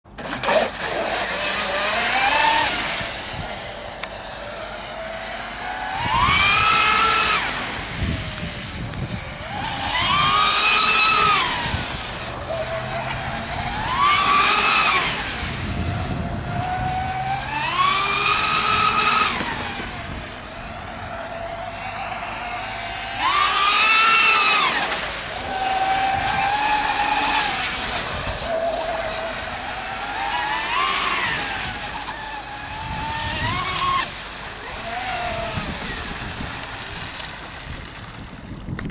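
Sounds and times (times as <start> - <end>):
electric boat motors whining: 0.1 - 38.9
water rushing hiss: 20.9 - 38.0.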